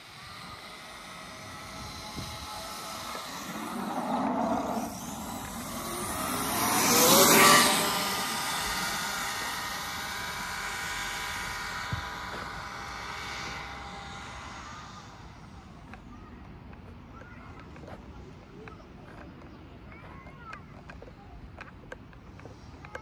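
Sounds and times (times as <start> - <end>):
electric motor whining: 0.0 - 15.2.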